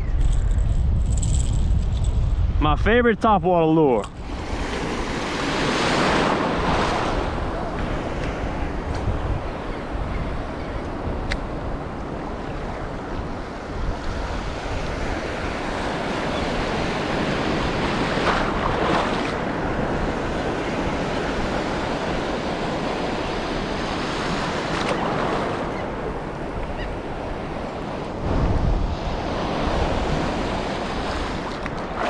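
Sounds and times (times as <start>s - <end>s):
wind buffeting microphone: 0.0s - 32.0s
surf washing around legs: 13.3s - 32.0s.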